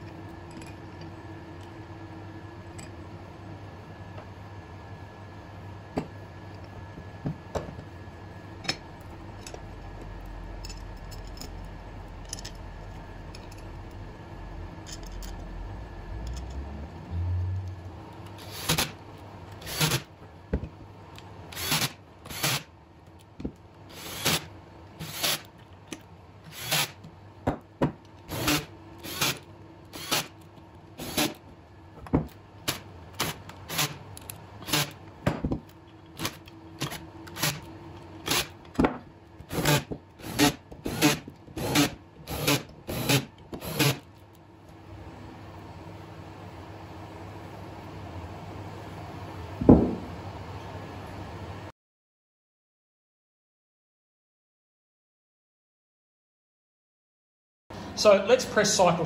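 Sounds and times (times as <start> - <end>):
metal parts clicking: 14.8 - 15.5
cordless drill driving screws: 21.5 - 22.6, 26.5 - 26.9, 28.3 - 29.4, 30.0 - 30.3, 39.5 - 44.0.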